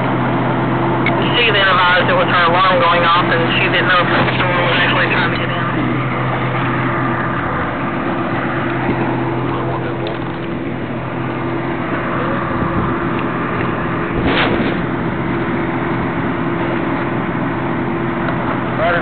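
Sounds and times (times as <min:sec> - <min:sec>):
diesel engines droning: 0:00.0 - 0:19.0
sharp crack: 0:13.2 - 0:15.3.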